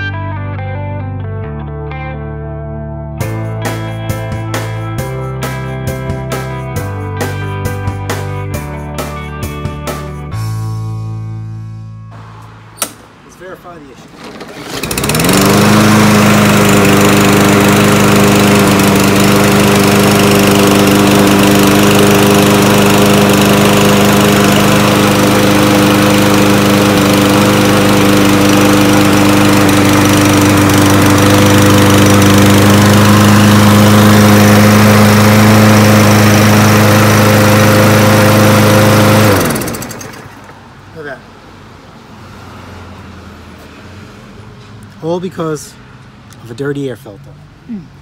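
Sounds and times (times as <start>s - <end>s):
push mower engine running: 13.9s - 40.7s.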